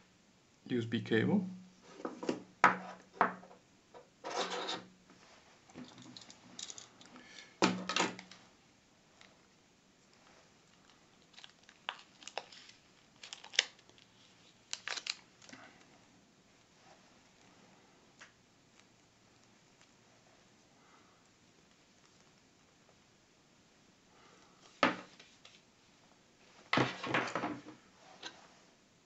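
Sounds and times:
cable rustling: 0:04.2 - 0:16.0.

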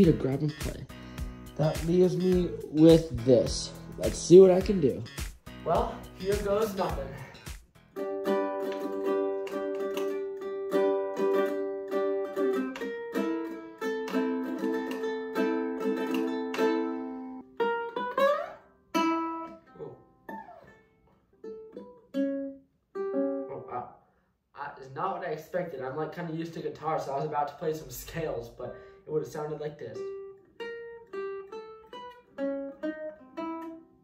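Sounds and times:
ukulele strumming: 0:00.0 - 0:07.3, 0:07.9 - 0:23.7, 0:29.3 - 0:34.0
slide up ukulele strings: 0:08.0 - 0:20.8.

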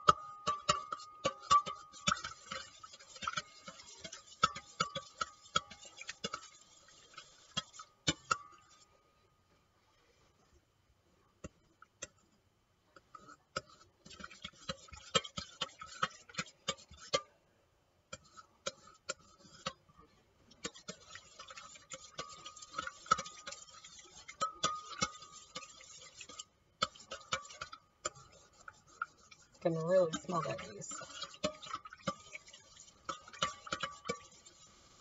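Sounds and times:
utensil clinking in metal bowl: 0:00.0 - 0:08.7, 0:20.6 - 0:34.6
scraping swish of stirring: 0:00.5 - 0:09.0, 0:11.4 - 0:17.4, 0:18.1 - 0:35.0.

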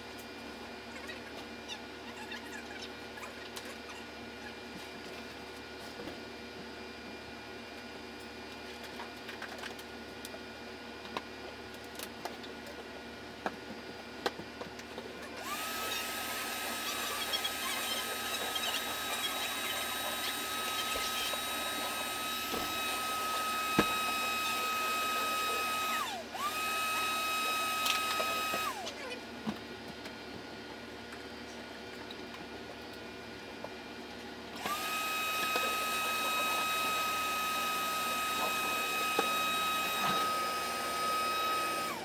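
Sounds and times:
shop vacuum running: 0:09.7 - 0:42.0.

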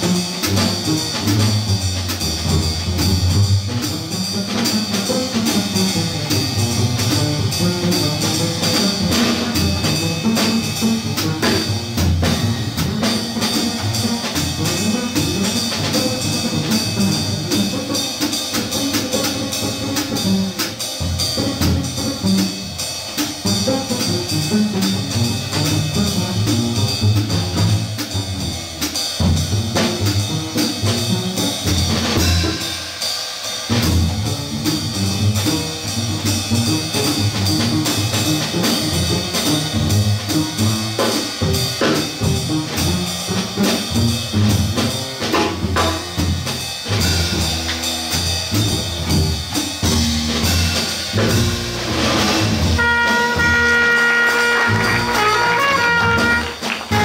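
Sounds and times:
cymbals: 0:00.0 - 0:57.0
bass drum hits: 0:45.5 - 0:57.0
snare drum hits: 0:51.1 - 0:57.0.

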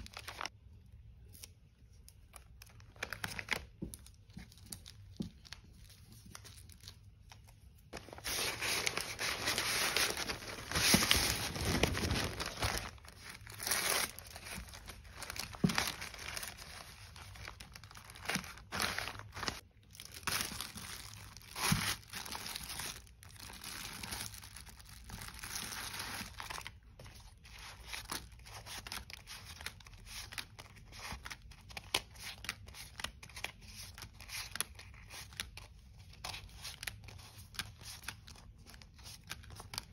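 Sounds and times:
plastic packaging crinkling: 0:00.0 - 0:00.5, 0:02.3 - 0:26.9.

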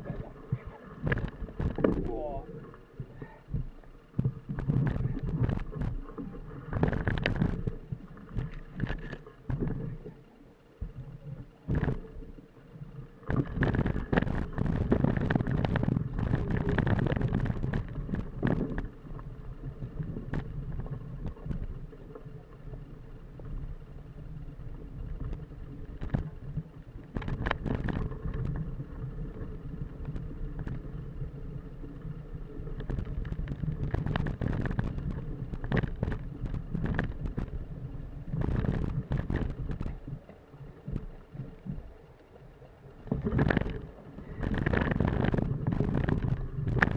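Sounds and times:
bike tyre rumble on dirt: 0:00.0 - 0:02.5, 0:13.3 - 0:22.1, 0:22.8 - 0:40.2, 0:43.0 - 0:46.9.

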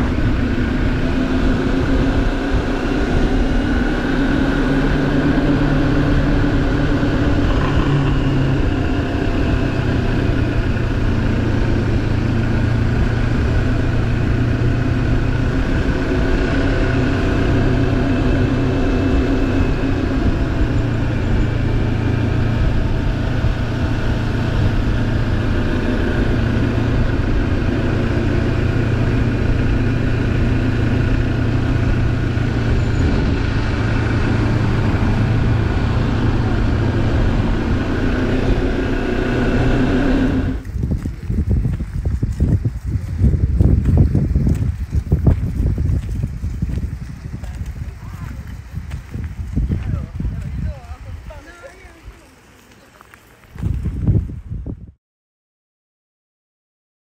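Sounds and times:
road noise rushing: 0:00.0 - 0:54.8
motorcycle engine cruising: 0:00.0 - 0:54.9.

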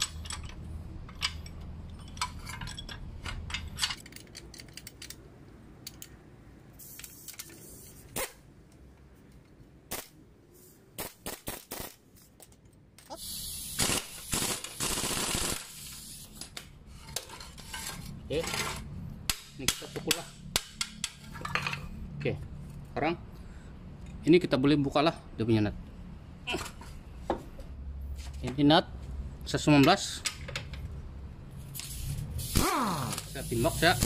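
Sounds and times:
metal clinks and clicks: 0:00.0 - 0:06.2
pneumatic impact wrench rattling: 0:06.8 - 0:08.4, 0:09.9 - 0:12.4, 0:13.1 - 0:18.1, 0:31.7 - 0:34.0.

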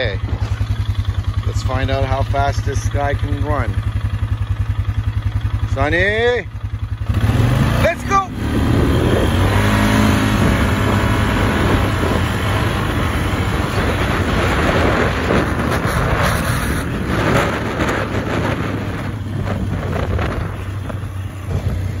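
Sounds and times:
atv engine running: 0:00.0 - 0:22.0
wind rushing over microphone: 0:08.0 - 0:22.0.

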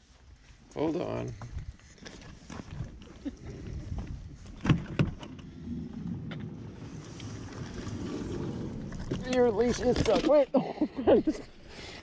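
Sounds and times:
sliding door rustling: 0:04.7 - 0:10.3.

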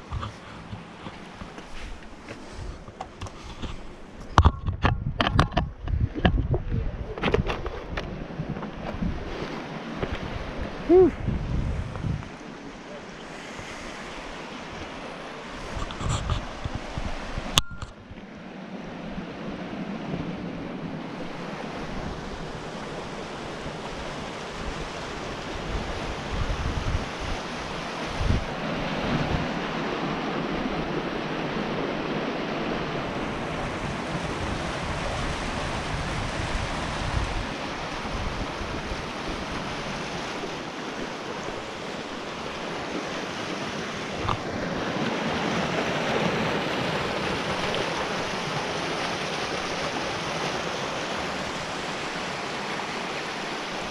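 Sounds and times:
wind gusting on microphone: 0:00.0 - 0:12.4, 0:13.4 - 0:18.2, 0:18.9 - 0:50.5
water rushing through channels: 0:18.7 - 0:53.9.

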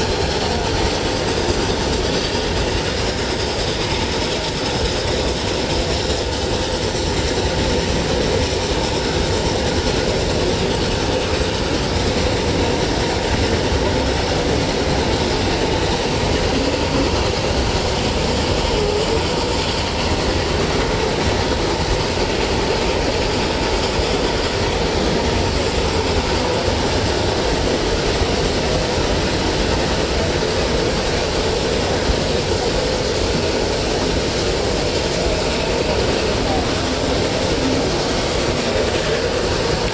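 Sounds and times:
steam train running on track: 0:00.0 - 0:39.9.

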